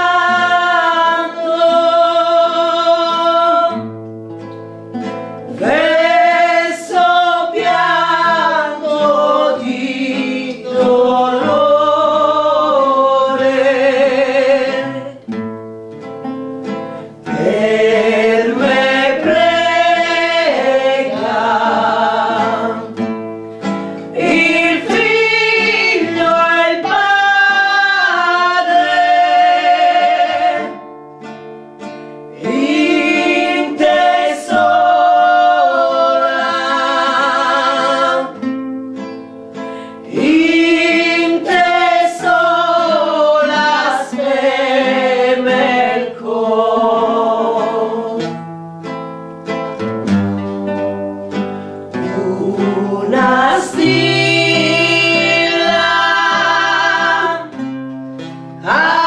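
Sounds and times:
acoustic guitar: 0:00.0 - 0:59.0
person singing devotional song: 0:05.6 - 0:15.2, 0:17.3 - 0:23.0, 0:24.2 - 0:30.8, 0:40.0 - 0:48.2, 0:52.0 - 0:57.5.

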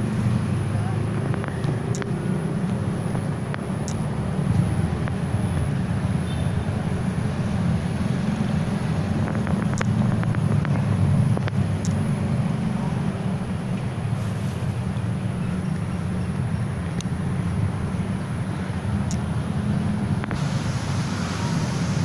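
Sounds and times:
low outdoor rumble: 0:00.0 - 0:22.0
faint clicks: 0:01.3 - 0:02.8.

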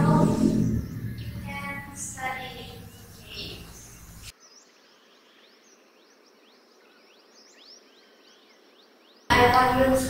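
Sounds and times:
classroom room noise: 0:00.0 - 0:04.3, 0:09.3 - 0:10.0.

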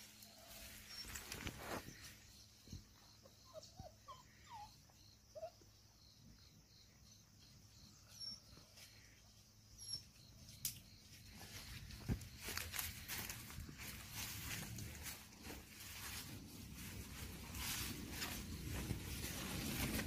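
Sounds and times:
puppies whimpering: 0:03.3 - 0:05.6
footfalls in dry leaves: 0:11.4 - 0:20.0.

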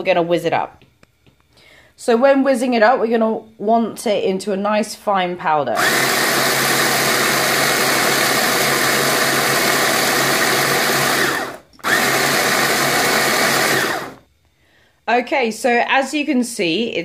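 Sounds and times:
electric chopper grinding: 0:05.8 - 0:14.2.

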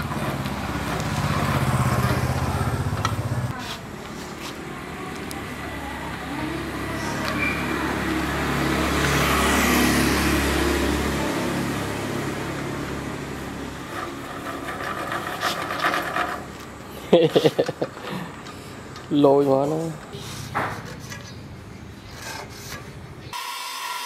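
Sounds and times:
hand-cranked pedal drive whirring: 0:13.8 - 0:16.7.

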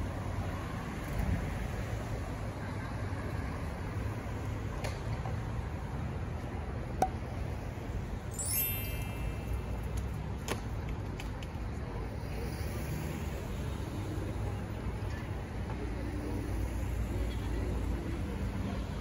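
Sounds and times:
city traffic rumble: 0:00.0 - 0:19.0
brief high ringing tone: 0:08.4 - 0:10.0.

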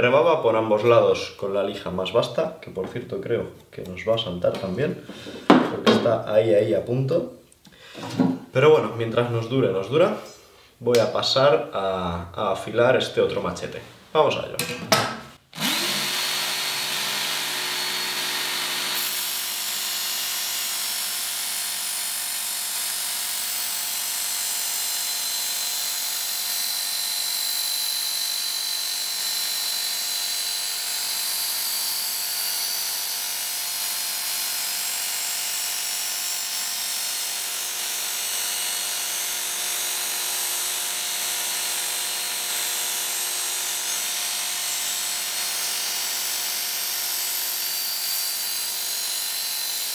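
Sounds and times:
belt sharpener motor whine: 0:15.6 - 0:49.9.

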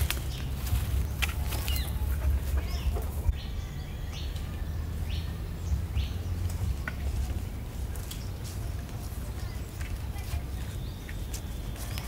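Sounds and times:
rustling branches and knocks: 0:00.0 - 0:01.9
birds chirping: 0:00.0 - 0:12.0
low outdoor rumble: 0:00.0 - 0:12.0.

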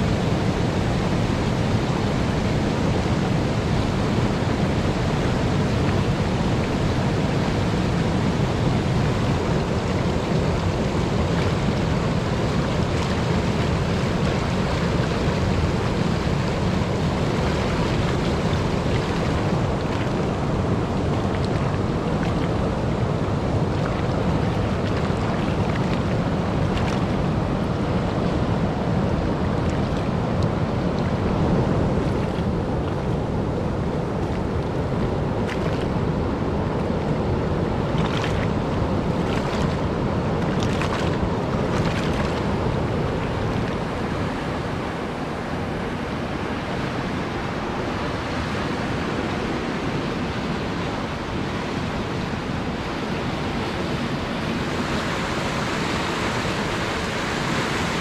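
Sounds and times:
roar of rushing water: 0:00.0 - 0:58.0.

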